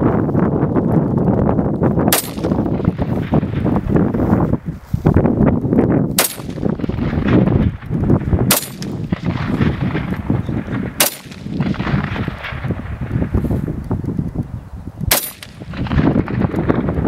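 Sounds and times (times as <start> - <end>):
steady low rumble: 0.0 - 17.0
rifle shots: 2.1 - 4.2, 6.1 - 13.3, 15.1 - 17.0.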